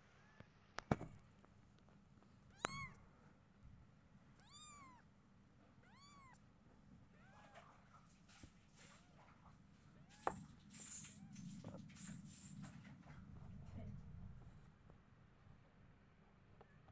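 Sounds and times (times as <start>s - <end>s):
kittens mewing: 2.5s - 3.0s, 4.4s - 5.0s, 5.8s - 6.4s.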